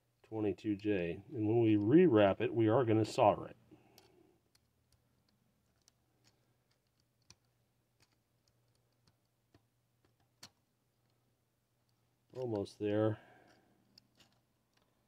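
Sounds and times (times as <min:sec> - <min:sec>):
faint low hum: 0:00.0 - 0:15.0
pliers clicking on wire: 0:03.8 - 0:11.2, 0:13.4 - 0:15.0.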